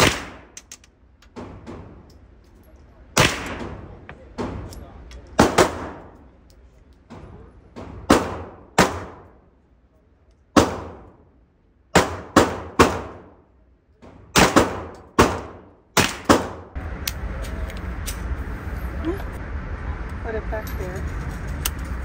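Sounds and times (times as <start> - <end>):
loud gunshots echoing: 0.0 - 0.6, 3.2 - 4.7, 5.4 - 6.2, 7.9 - 9.4, 10.6 - 11.2, 11.9 - 13.4, 14.3 - 16.8.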